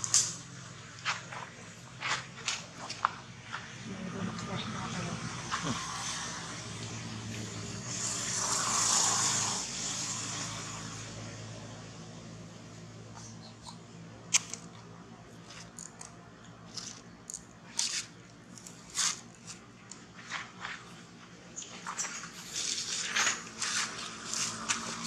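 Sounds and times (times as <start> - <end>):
monkey cracking and chewing peanuts: 13.6 - 20.1.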